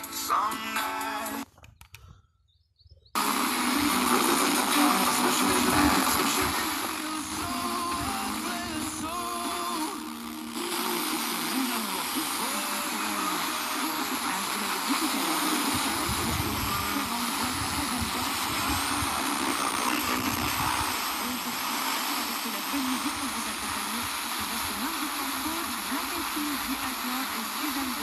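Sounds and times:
radio static hiss: 0.0s - 1.4s, 3.2s - 28.0s
faint radio programme audio: 0.0s - 1.7s, 3.2s - 28.0s.

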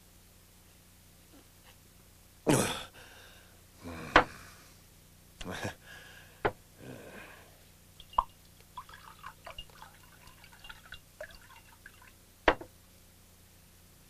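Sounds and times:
dripping splashes: 8.0s - 12.2s
liquid pouring into cup: 8.0s - 12.2s
pot knocking on wooden table: 12.5s - 12.7s.

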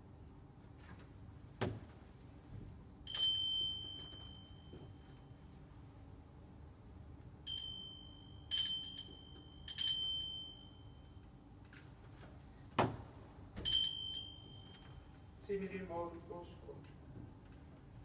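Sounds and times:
altar bells ringing: 7.5s - 10.9s, 13.7s - 15.0s.

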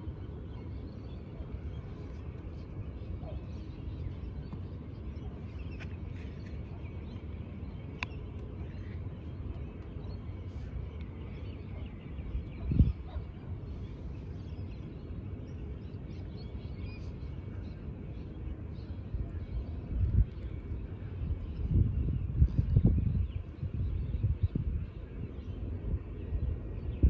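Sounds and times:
wind rumbling on microphone: 0.0s - 27.0s
gust buffeting microphone: 12.0s - 14.6s, 19.0s - 27.0s.

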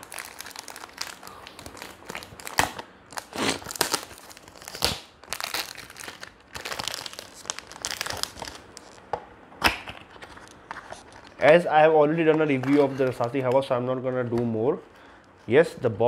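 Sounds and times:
cellophane crinkling and tearing: 0.0s - 11.6s.

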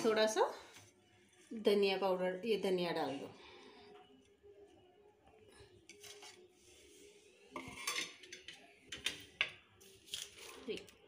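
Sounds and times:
spoon scraping pot: 7.5s - 9.3s.

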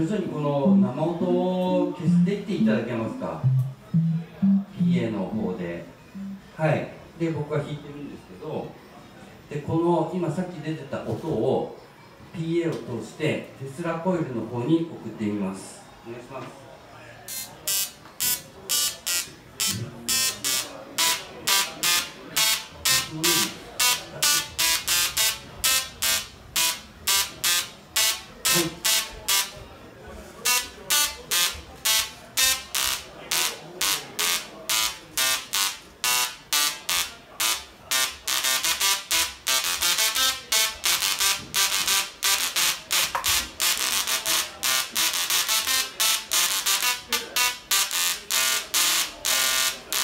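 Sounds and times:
tesla coil buzzy notes: 0.0s - 6.6s, 17.3s - 29.7s, 30.4s - 50.0s.

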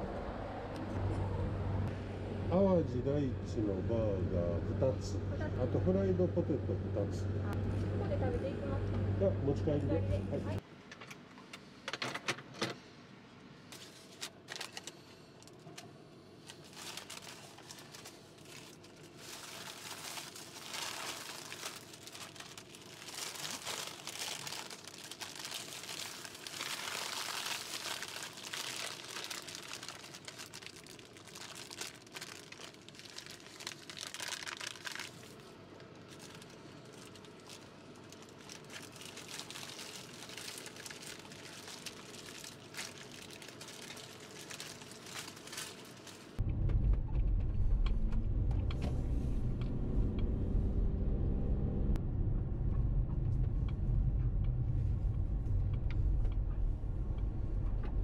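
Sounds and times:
paper wrappers crinkling: 13.7s - 15.8s, 16.4s - 46.4s.

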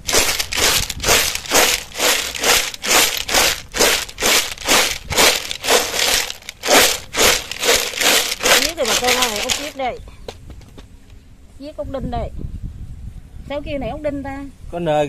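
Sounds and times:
snail shells rattling and grinding: 0.0s - 9.8s.

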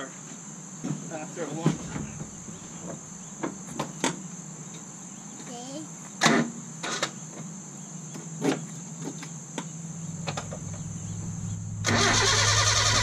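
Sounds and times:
car engine running: 9.7s - 13.0s
low hum: 9.8s - 13.0s.

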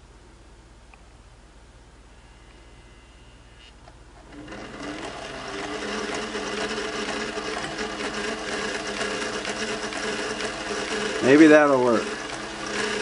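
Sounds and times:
sewing machine running: 4.2s - 13.0s.

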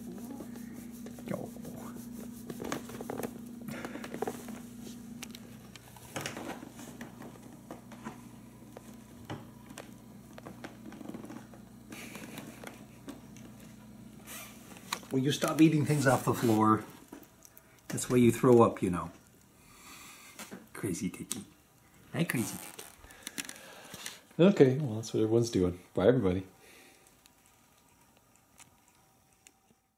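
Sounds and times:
paper rustling and crinkling: 0.0s - 7.9s, 14.6s - 17.3s
steady low hum: 0.0s - 29.9s.

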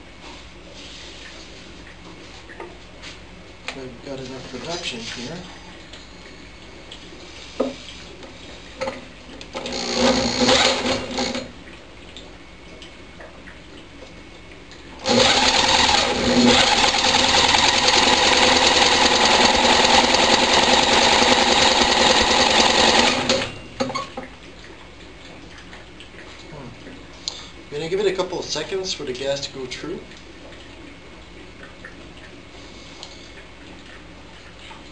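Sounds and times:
electric drill cranking engine: 9.6s - 11.4s, 15.0s - 23.5s.

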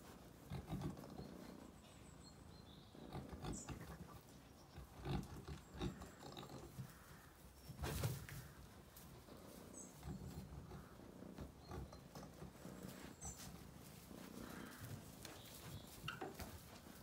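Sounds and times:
sheep shuffling in straw: 12.6s - 17.0s.

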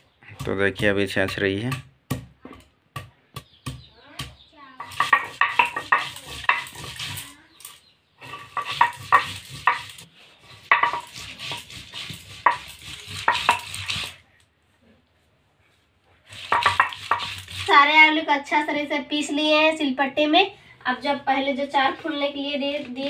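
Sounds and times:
stone roller grinding on stone: 4.8s - 14.2s, 16.2s - 18.2s.

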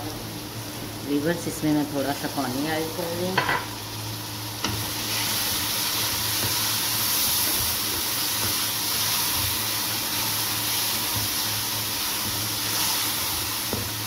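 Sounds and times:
masala sizzling in a wok: 0.0s - 14.0s
spatula stirring: 4.6s - 14.0s.

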